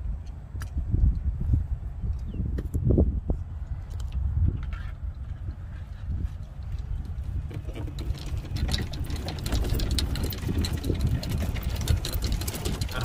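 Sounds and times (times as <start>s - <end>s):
golf cart motor rumble: 4.0s - 13.0s
rapid rattling clatter: 7.2s - 13.0s.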